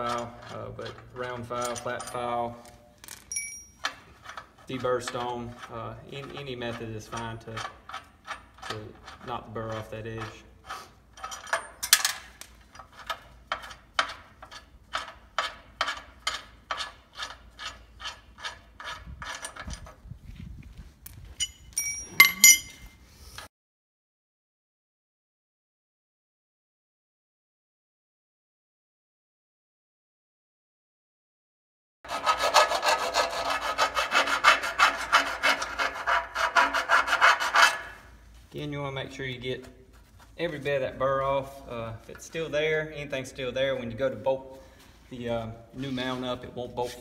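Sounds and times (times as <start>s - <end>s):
hand file rasping on steel: 3.9s - 11.5s, 12.9s - 19.6s, 32.1s - 38.2s.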